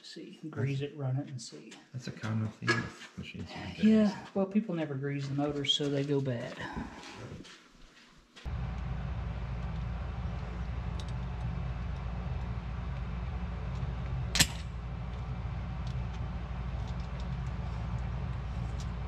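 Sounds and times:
low rumble: 0:08.5 - 0:19.0
sharp metal click: 0:14.3 - 0:14.7.

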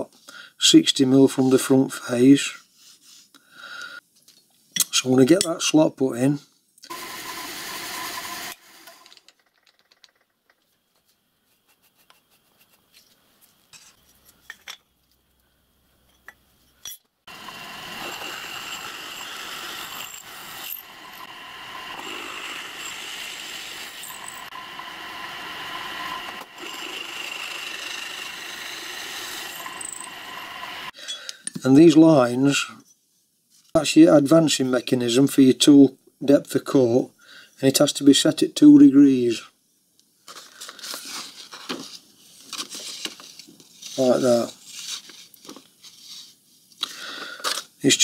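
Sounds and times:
milling machine cutting steel: 0:06.9 - 0:09.1, 0:17.3 - 0:30.9.

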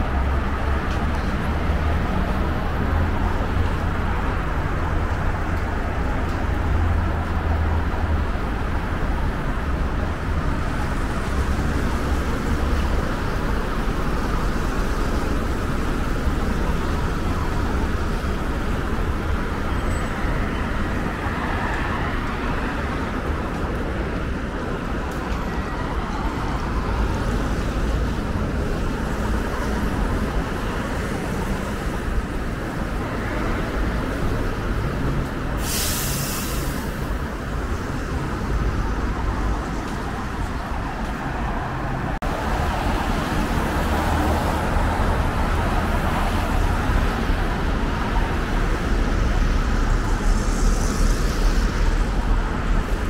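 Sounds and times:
cars and buses passing: 0:00.0 - 0:53.0
short sharp hiss: 0:35.6 - 0:36.9.

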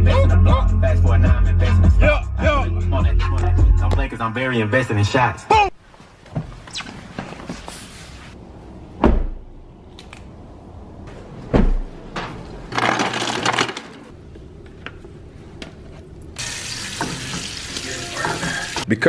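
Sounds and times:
ice clattering into paper cup: 0:12.7 - 0:13.9.

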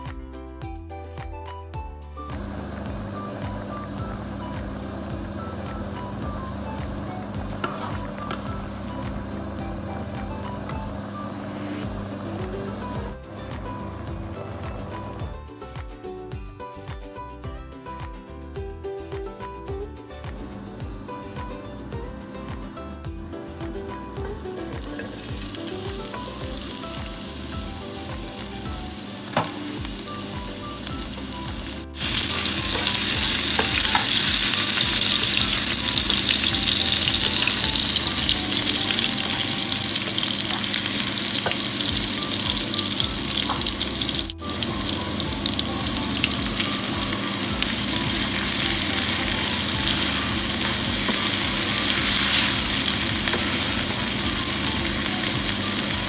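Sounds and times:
garlic sizzling in hot oil: 0:02.4 - 0:15.2, 0:24.0 - 0:56.0
spatula stirring onions in pan: 0:07.5 - 0:08.4, 0:24.5 - 0:42.0, 0:47.3 - 0:55.8.

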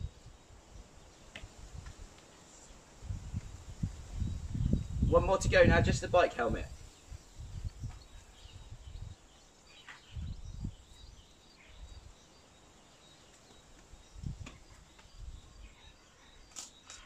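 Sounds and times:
birds chirping: 0:03.8 - 0:17.0.

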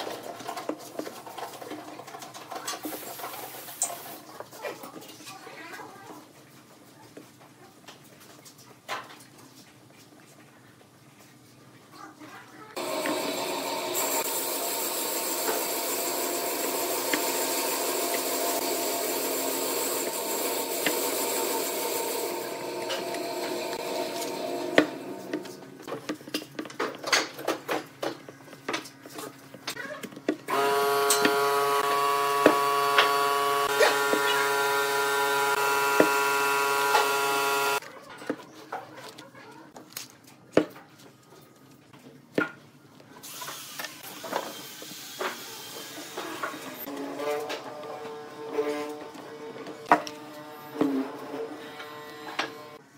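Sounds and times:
machine running: 0:12.8 - 0:25.9, 0:30.5 - 0:37.8
motor humming: 0:12.8 - 0:25.9, 0:30.5 - 0:37.8.

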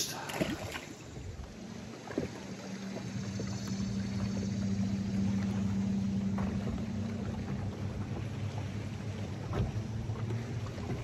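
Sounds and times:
boat motor humming: 0:00.0 - 0:11.0.

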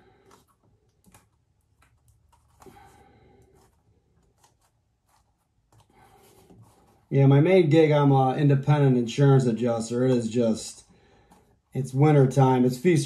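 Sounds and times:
leather creaking: 0:00.0 - 0:07.1.

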